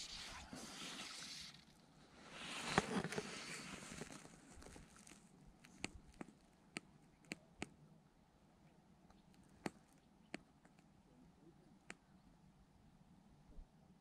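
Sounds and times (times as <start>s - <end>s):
fly line rustling hiss: 0.0s - 5.2s.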